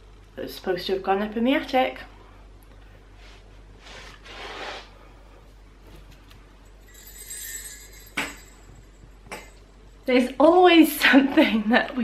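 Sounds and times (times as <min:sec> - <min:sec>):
light clinking jingle: 0:06.6 - 0:10.1.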